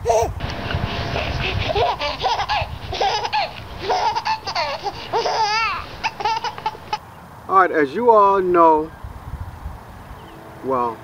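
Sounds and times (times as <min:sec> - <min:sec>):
small child laughing: 0:01.2 - 0:07.0.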